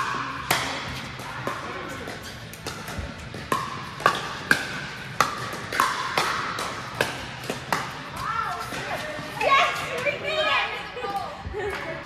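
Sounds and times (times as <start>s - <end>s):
paddles hitting plastic ball: 0.0s - 9.0s.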